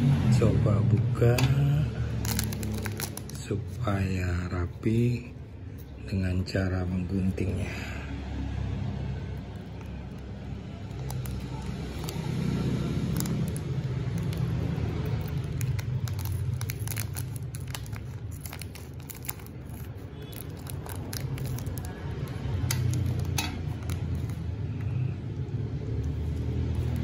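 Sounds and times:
scissors cutting plastic wrapper: 2.2s - 3.5s, 9.7s - 24.4s.

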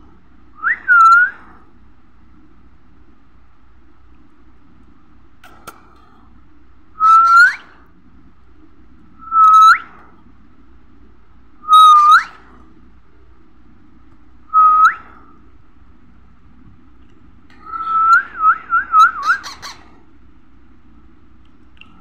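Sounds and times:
baby parakeet calling: 11.7s - 12.4s, 19.0s - 19.9s.

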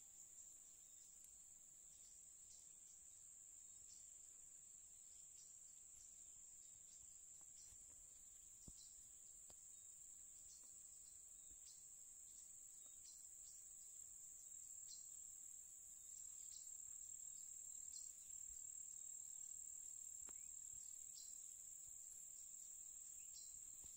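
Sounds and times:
insects trilling: 0.0s - 23.9s
short insect chirp: 0.0s - 23.9s.

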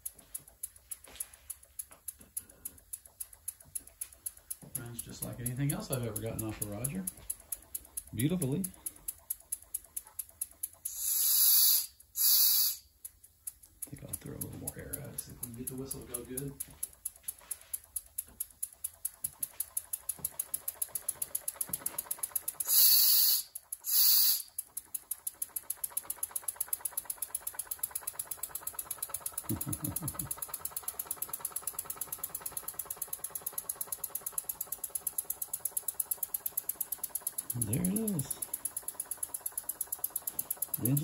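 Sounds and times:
toy steam engine exhaust beating: 0.0s - 41.0s
hissing whistle blasts: 10.9s - 12.8s, 22.7s - 24.5s.

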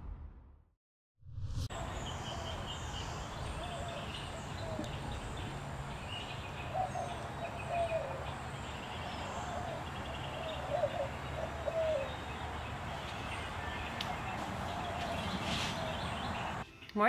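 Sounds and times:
bird low call: 1.8s - 12.5s.

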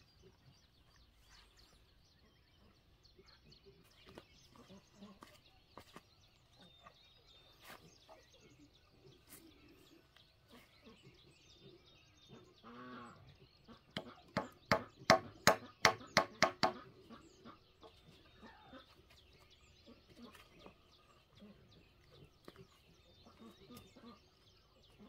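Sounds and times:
sharp knocks on wooden plank: 14.0s - 16.8s.

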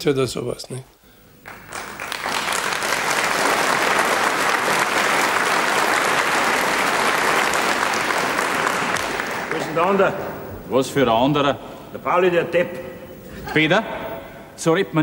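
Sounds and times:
audience applauding: 1.4s - 10.4s.

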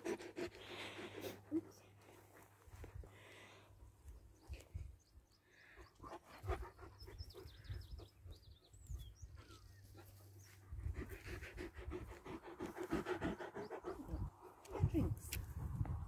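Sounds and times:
dog panting: 0.0s - 2.8s, 9.9s - 15.2s.

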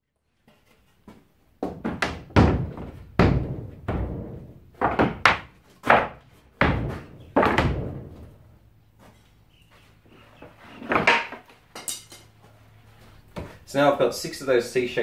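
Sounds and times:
plywood panels thunking: 1.6s - 8.6s, 10.3s - 11.7s, 13.2s - 13.7s.

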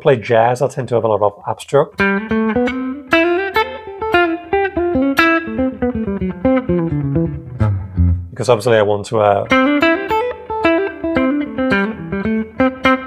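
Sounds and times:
electric guitar jazz line: 2.0s - 8.5s, 9.4s - 13.0s.

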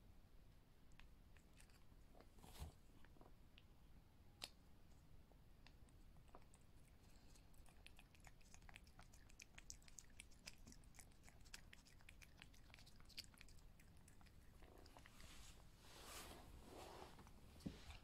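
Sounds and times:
cat licking and chewing: 0.9s - 2.4s, 4.4s - 15.8s, 17.2s - 18.0s.

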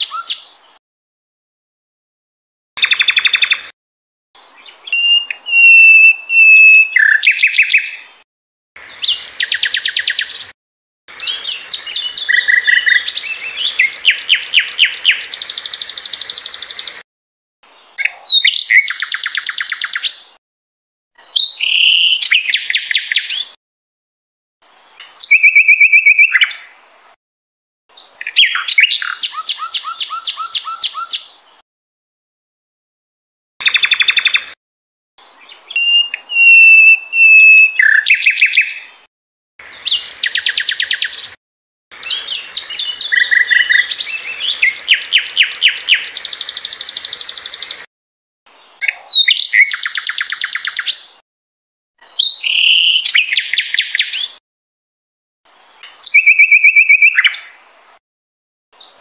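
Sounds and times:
bird singing trills and whistles: 0.0s - 0.5s, 2.8s - 3.7s, 4.4s - 8.1s, 8.8s - 10.5s, 11.1s - 17.0s, 18.0s - 20.2s, 21.2s - 23.6s, 25.0s - 26.7s, 28.0s - 31.4s, 33.6s - 34.6s, 35.2s - 38.9s, 39.7s - 41.4s, 42.0s - 47.9s, 48.8s - 51.1s, 52.0s - 54.4s, 55.8s - 57.6s.

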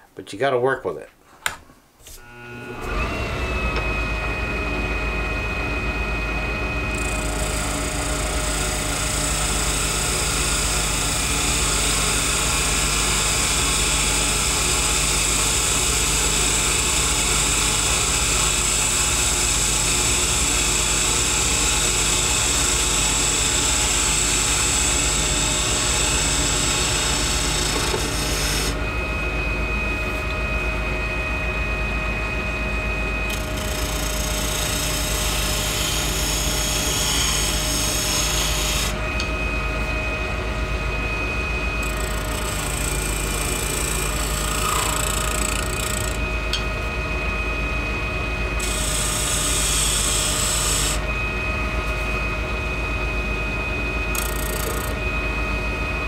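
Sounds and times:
lathe motor humming: 2.2s - 29.8s, 33.0s - 39.6s, 41.4s - 46.6s, 48.6s - 51.1s, 54.1s - 55.0s
chisel scraping spinning acrylic: 41.8s - 46.2s.

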